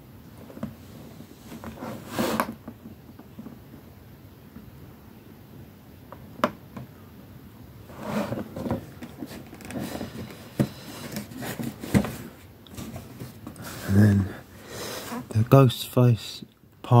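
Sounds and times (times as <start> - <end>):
cardboard box rustling: 7.9 - 14.0
tap on cardboard box: 10.5 - 10.8.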